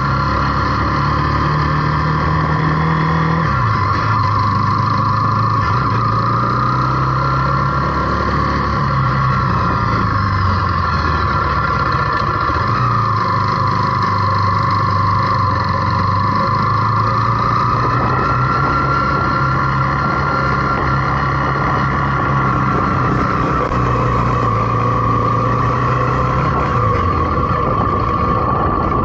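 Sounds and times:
motorcycle engine running: 0.0s - 29.0s
wind rushing over microphone: 14.8s - 29.0s.

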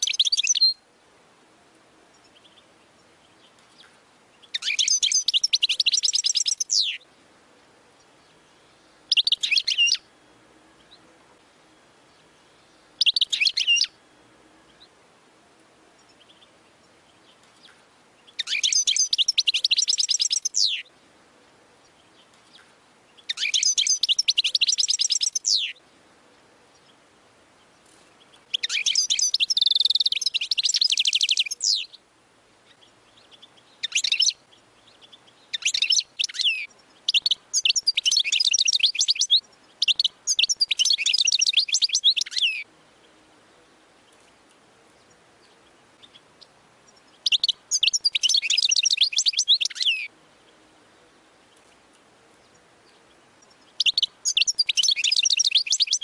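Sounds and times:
bird twittering song: 0.0s - 0.8s, 2.1s - 14.0s, 14.6s - 15.0s, 15.9s - 56.0s.

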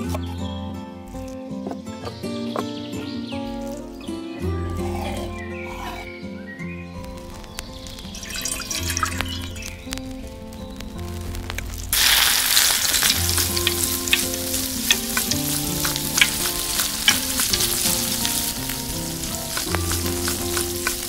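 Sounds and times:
oil sizzling in wok: 7.2s - 21.0s.

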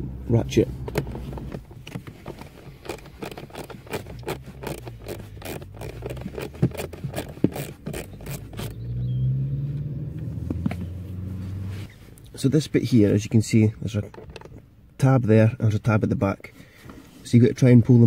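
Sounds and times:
socket ratchet clicking: 2.4s - 8.8s.

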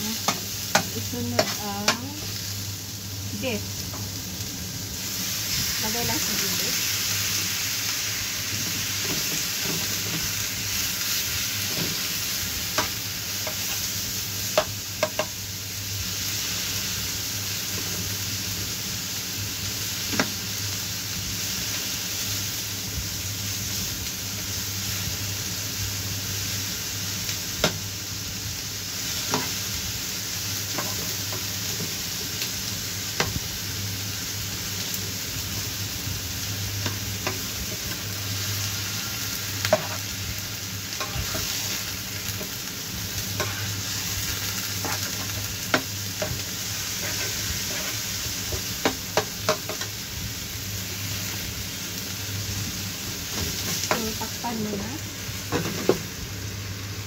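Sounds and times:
beef and onions sizzling in pan: 0.0s - 57.0s
spatula scraping and knocking pan: 0.3s - 2.0s, 39.6s - 40.0s, 43.3s - 49.9s.

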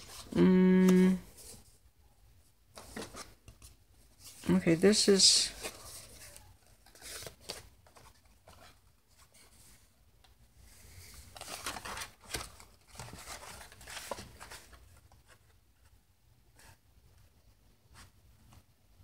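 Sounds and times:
paper sheets rustling: 2.8s - 9.8s, 11.0s - 15.4s.

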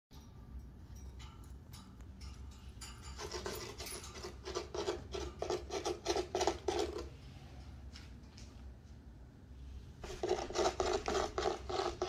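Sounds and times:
cat rasping rhythmically: 10.1s - 12.0s.

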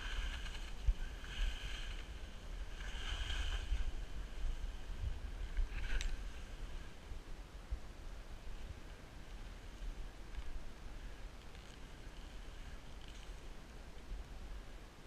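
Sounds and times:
skis swishing over snow: 0.0s - 7.0s
wind rumbling on microphone: 0.0s - 15.0s.

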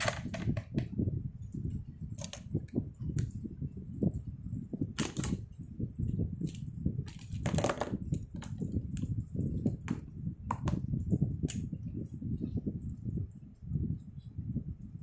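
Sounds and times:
plastic pens clattering: 0.0s - 0.9s, 2.2s - 2.6s, 5.0s - 5.4s, 6.4s - 8.8s.

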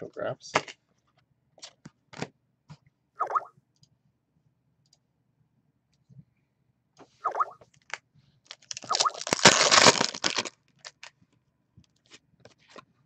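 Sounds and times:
plastic wrapping crinkling and tearing: 7.8s - 11.2s.

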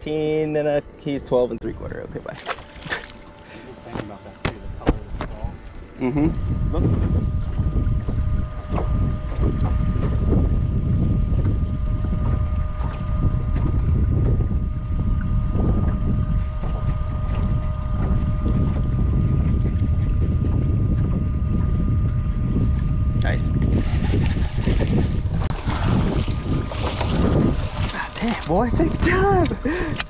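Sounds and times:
faint steady whine: 0.0s - 30.0s
wind buffeting microphone: 3.8s - 30.0s.

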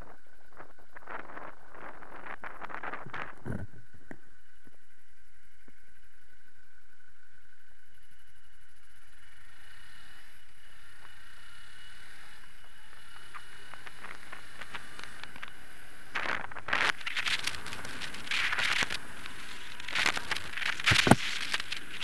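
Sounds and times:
crackling and rustling bursts: 0.0s - 4.0s, 12.3s - 22.0s
motorcycle ride noise on microphone: 0.0s - 22.0s.

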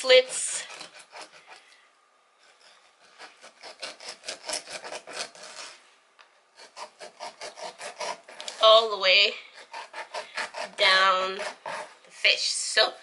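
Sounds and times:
knife sawing through fish skin: 0.0s - 1.7s, 2.4s - 5.8s, 6.6s - 8.6s, 9.5s - 12.2s.

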